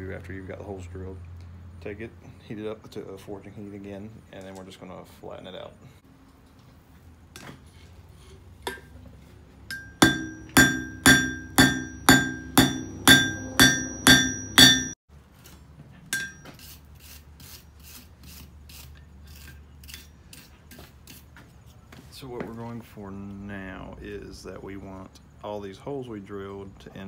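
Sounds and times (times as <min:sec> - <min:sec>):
hammer ringing on metal anvil: 0:09.7 - 0:15.0, 0:16.1 - 0:16.5
wire brush scrubbing: 0:16.5 - 0:21.2.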